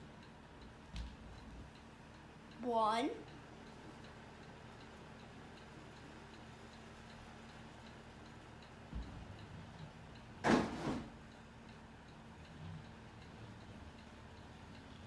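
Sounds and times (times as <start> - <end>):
mantel clock ticking: 0.0 - 10.4, 11.1 - 15.0
dull thump: 10.4 - 11.1.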